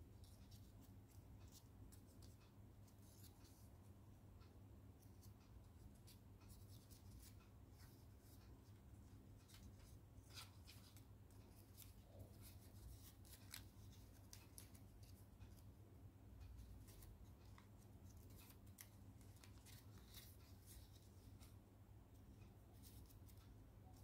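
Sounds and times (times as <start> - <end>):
low steady hum: 0.0 - 24.0
paper crinkling being folded: 6.0 - 15.2, 16.6 - 21.5.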